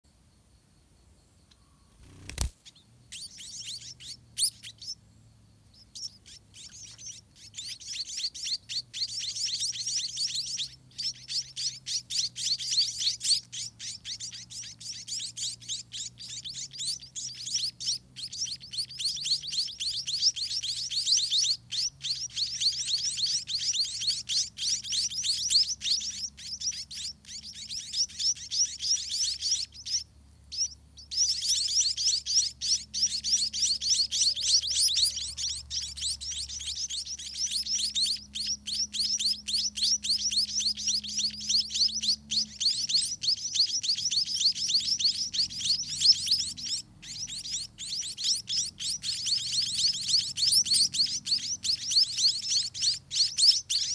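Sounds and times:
nestlings high thin chirps: 1.5s - 5.0s, 5.7s - 53.9s.

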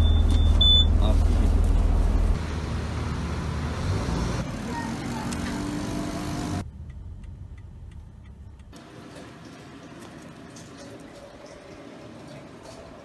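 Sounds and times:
street traffic: 0.0s - 10.6s
vehicle passing by: 2.0s - 6.6s
turn signal ticking: 6.6s - 8.8s.

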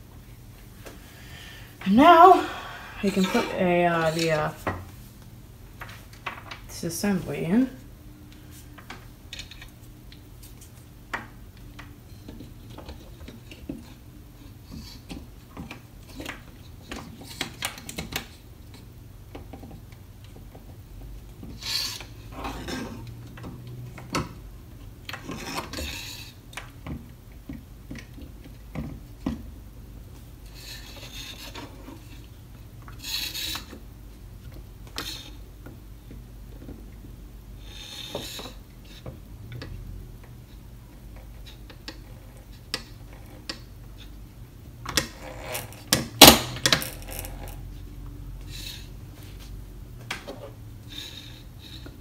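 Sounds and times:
parts rubbing and scraping: 30.4s - 32.3s.

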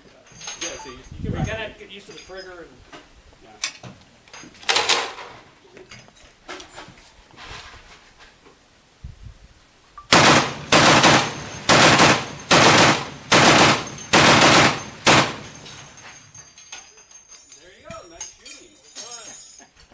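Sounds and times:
heavy machine gun firing bursts: 10.1s - 15.6s.

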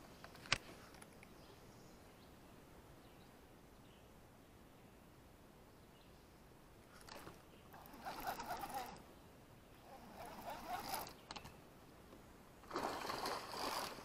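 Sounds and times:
fishing reel gears whirring: 7.8s - 9.0s, 9.9s - 11.2s.

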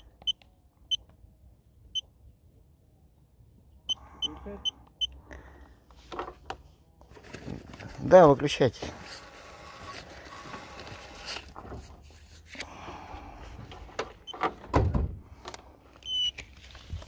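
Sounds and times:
small knocks and clunks: 6.0s - 6.6s.

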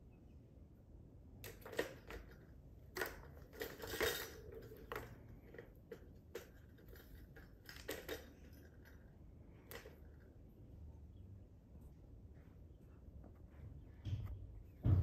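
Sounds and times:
plastic balls clattering in toy track: 1.4s - 9.1s.

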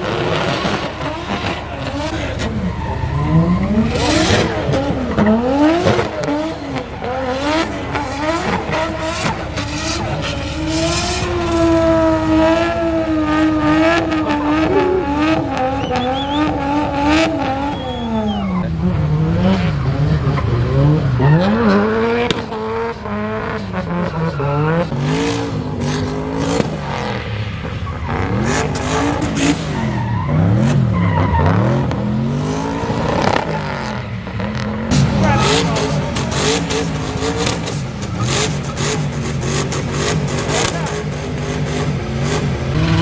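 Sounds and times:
car engine revving hard: 0.0s - 43.0s.

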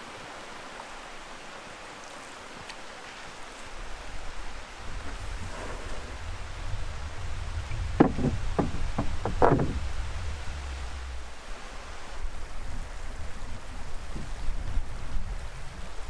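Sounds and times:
low steady rumble: 3.9s - 15.7s
hollow knocks on canoe hull: 7.7s - 11.3s.

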